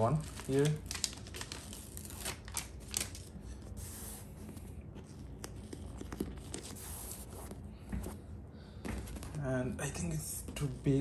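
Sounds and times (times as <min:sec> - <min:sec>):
tape and paper rustling: 0:00.0 - 0:07.6.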